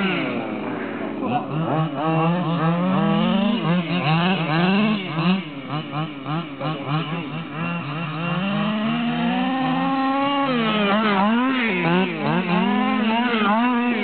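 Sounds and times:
two-stroke engines revving: 0:00.0 - 0:14.0.

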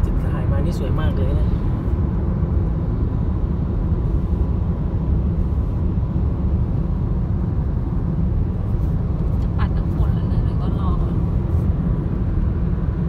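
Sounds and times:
car cabin road and engine rumble: 0:00.0 - 0:13.0.

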